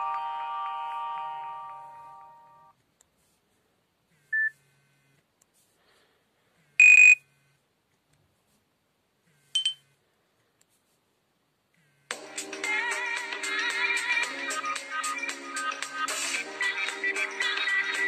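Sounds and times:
phone beep: 0:04.3 - 0:04.6, 0:06.8 - 0:07.2, 0:09.6 - 0:09.9
harsh buzzer tone: 0:06.7 - 0:07.6.

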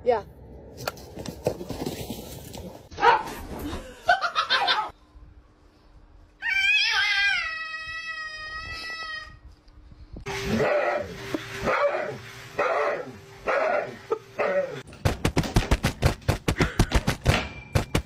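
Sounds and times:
cat yowling: 0:06.4 - 0:09.3.

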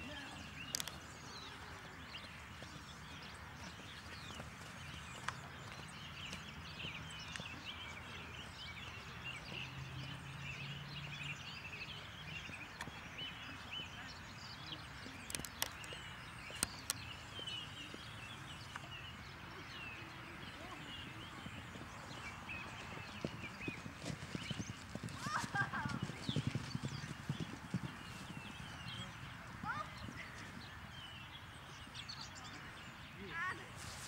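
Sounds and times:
birds chirping and calling: 0:00.0 - 0:34.0.

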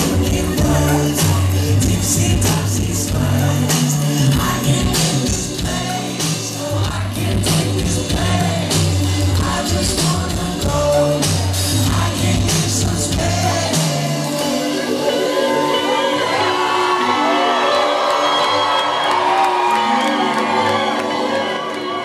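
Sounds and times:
deep pulsing bass line: 0:00.0 - 0:13.8
drums: 0:00.0 - 0:15.6
live band playing: 0:00.0 - 0:18.2
person singing: 0:00.0 - 0:18.4.

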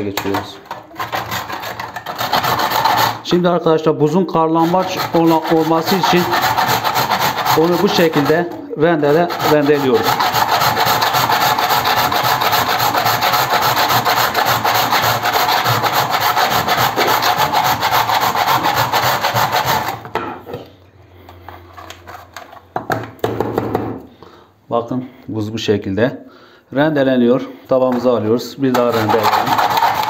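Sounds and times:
ice rasping on metal grater: 0:00.2 - 0:03.3, 0:04.5 - 0:20.0, 0:28.7 - 0:30.0.

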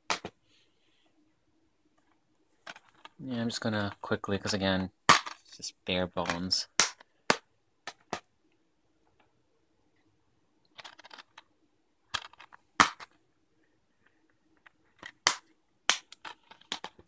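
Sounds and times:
plastic rattling: 0:02.0 - 0:03.2, 0:10.7 - 0:11.5, 0:12.1 - 0:13.2, 0:14.5 - 0:17.0
plastic cases snapping open and shut: 0:14.6 - 0:17.0.

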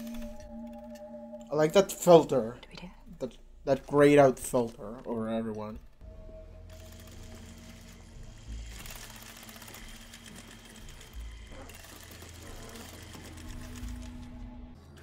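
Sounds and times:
low music drone: 0:00.0 - 0:05.1, 0:06.0 - 0:15.0
rapid mechanical clicking and clattering: 0:06.7 - 0:15.0.

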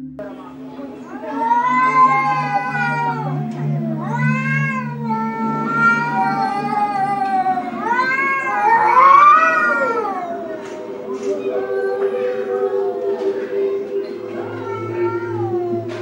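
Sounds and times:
cats yowling: 0:01.1 - 0:16.0.

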